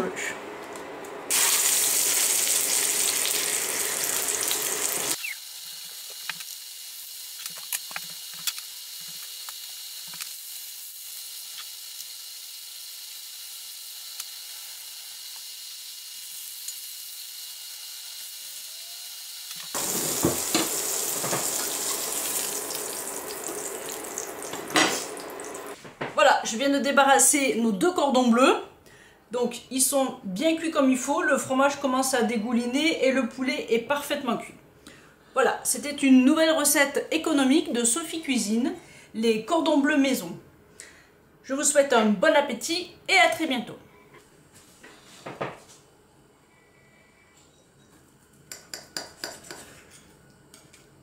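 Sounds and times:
food sizzling in frying pan: 1.3s - 18.6s, 19.3s - 25.8s
spatula tapping: 48.5s - 49.7s.

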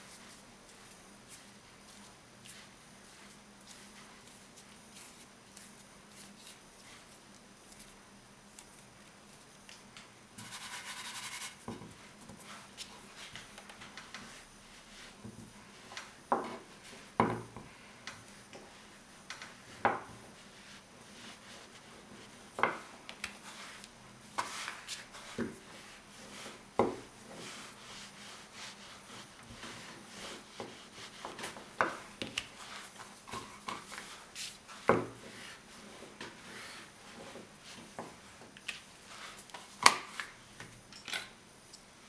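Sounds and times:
rolling pin rubbing: 23.4s - 37.8s.

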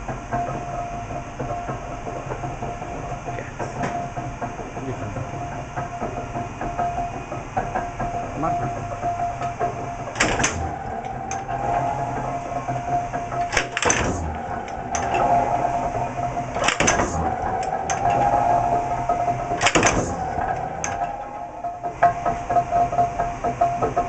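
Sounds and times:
power press humming: 0.0s - 24.0s
press ram clanking: 5.6s - 24.0s.

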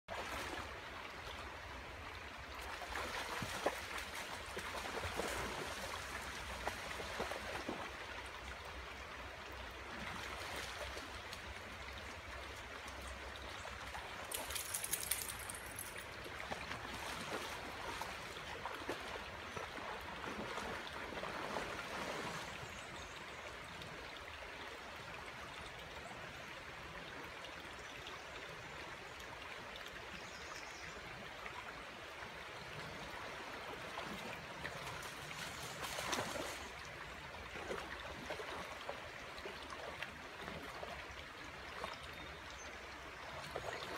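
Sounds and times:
creek water flowing: 0.1s - 43.9s
dog splashing and paddling: 14.3s - 22.4s, 34.0s - 36.7s.

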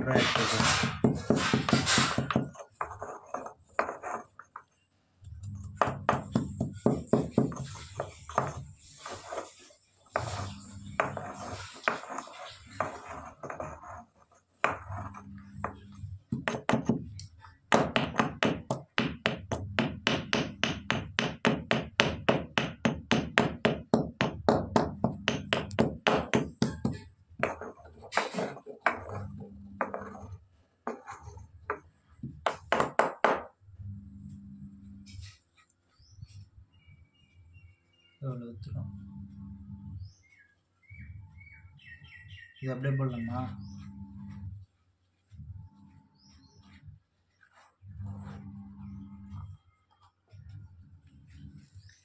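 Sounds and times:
stone pestle pounding in mortar: 0.2s - 2.6s, 5.8s - 7.7s, 15.6s - 27.6s.

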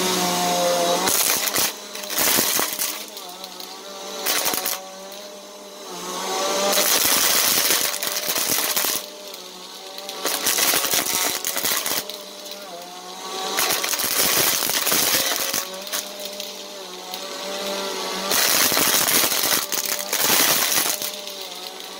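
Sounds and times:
vacuum cleaner motor hum: 0.0s - 21.9s
beads rattling in vacuum: 0.5s - 5.6s, 6.2s - 21.9s.

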